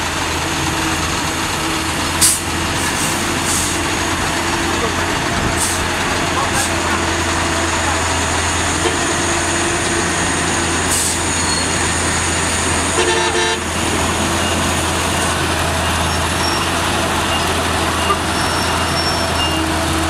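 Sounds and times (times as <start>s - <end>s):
truck diesel engine running: 0.0s - 20.0s
vehicle horn toot: 8.8s - 9.3s, 13.0s - 13.7s.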